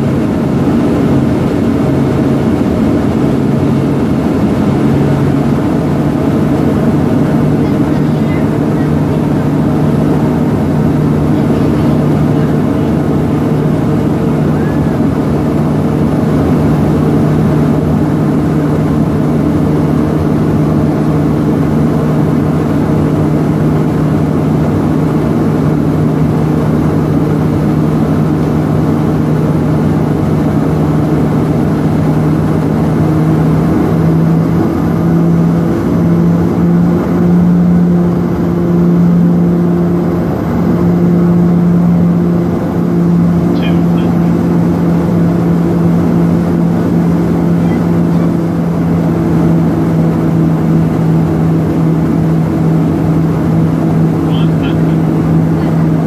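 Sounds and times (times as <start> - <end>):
turboprop engines cabin drone: 0.0 - 56.0.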